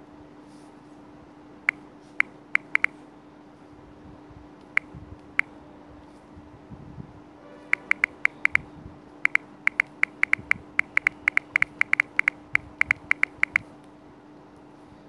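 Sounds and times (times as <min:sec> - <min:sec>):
taps on smartphone touchscreen: 0:02.2 - 0:02.9, 0:07.8 - 0:08.6, 0:09.2 - 0:13.6.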